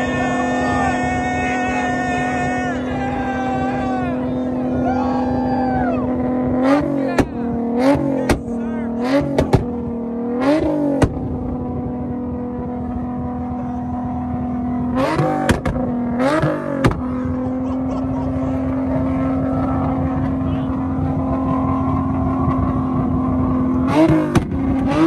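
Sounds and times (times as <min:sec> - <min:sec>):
car engine idling and revving: 0:00.0 - 0:25.0
exhaust pops and cracks: 0:09.4 - 0:09.8, 0:11.0 - 0:11.4, 0:15.1 - 0:16.0, 0:16.8 - 0:17.2, 0:24.1 - 0:24.9.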